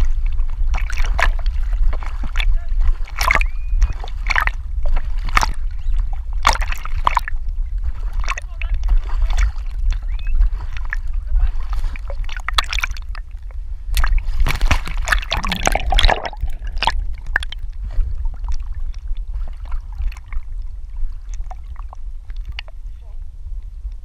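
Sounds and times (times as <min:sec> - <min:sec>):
water splashing and sloshing: 0:00.0 - 0:23.2
low rumble of water on camera: 0:00.0 - 0:24.0.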